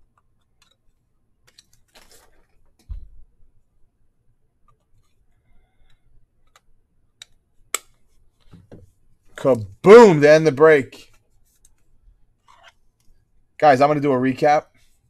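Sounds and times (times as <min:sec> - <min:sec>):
trading cards and plastic holders rustling: 0:00.0 - 0:02.9, 0:11.0 - 0:13.3.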